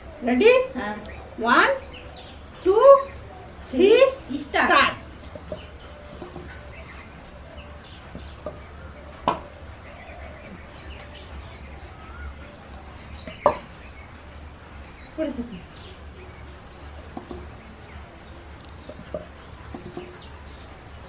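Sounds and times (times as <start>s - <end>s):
low steady hum: 0.0s - 21.0s
paper cups tapping on table: 17.1s - 17.5s, 18.8s - 20.2s.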